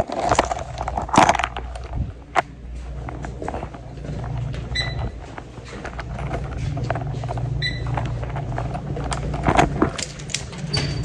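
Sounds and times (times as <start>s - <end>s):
steady low rumble: 0.4s - 11.0s
handling clicks and knocks: 5.3s - 11.0s.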